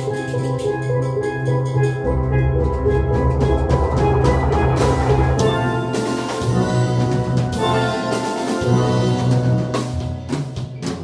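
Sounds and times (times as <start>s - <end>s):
steel pans playing chords: 0.0s - 10.4s
drum kit keeping time: 0.0s - 11.0s.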